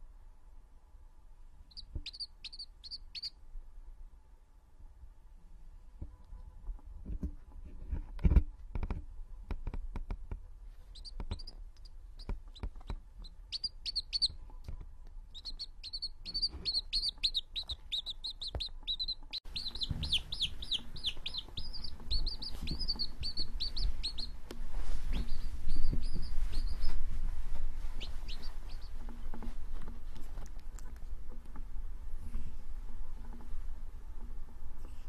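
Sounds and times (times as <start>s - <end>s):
baby chick peeping: 1.7s - 3.4s, 10.8s - 31.6s.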